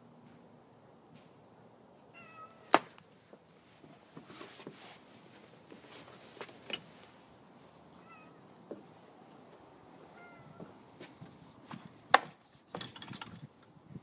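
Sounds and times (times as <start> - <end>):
cat meowing: 2.2 - 2.7, 8.0 - 8.5, 10.1 - 10.7
knocks and rustles: 10.6 - 13.6.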